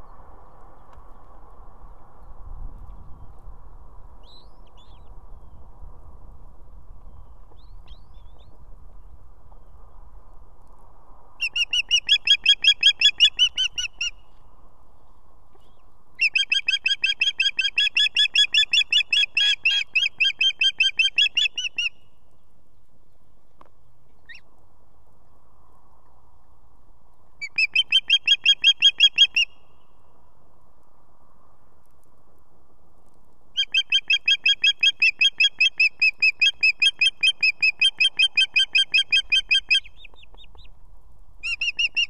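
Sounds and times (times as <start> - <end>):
osprey whistled calls: 11.4 - 14.2, 15.6 - 22.1, 27.4 - 29.8, 33.6 - 40.7, 41.4 - 42.0.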